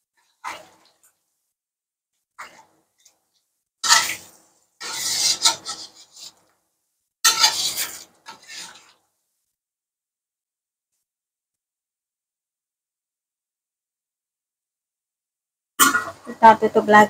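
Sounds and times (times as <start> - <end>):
spatula scraping metal wok: 0.2 - 1.0, 2.4 - 2.7, 3.8 - 6.4, 7.2 - 9.0.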